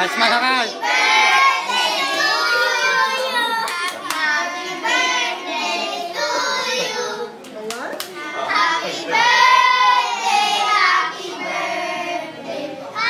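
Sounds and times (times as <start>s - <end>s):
girls singing together: 0.7s - 7.4s, 8.2s - 13.0s
sharp claps: 3.6s - 4.3s.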